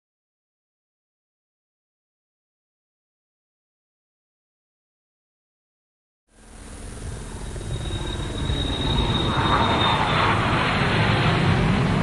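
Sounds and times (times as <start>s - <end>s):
deep rumbling whoosh: 6.5s - 12.0s
thin high whistle: 6.7s - 10.5s.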